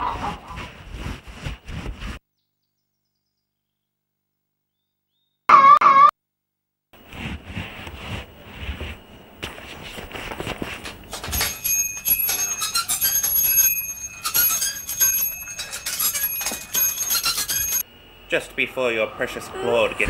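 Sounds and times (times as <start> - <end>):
scuffing and rustling: 0.0 - 2.2, 7.0 - 11.6
bicycle bell ringing: 11.3 - 17.8.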